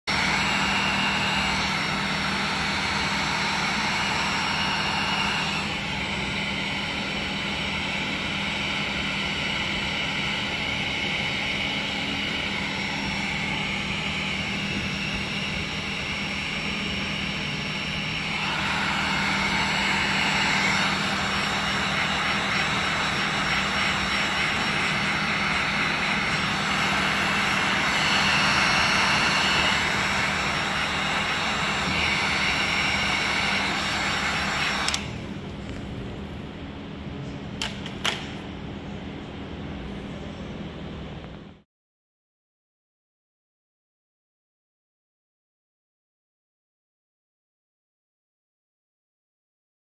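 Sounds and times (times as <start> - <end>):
heat gun blowing: 0.0 - 35.3
fan motor humming: 0.1 - 39.4.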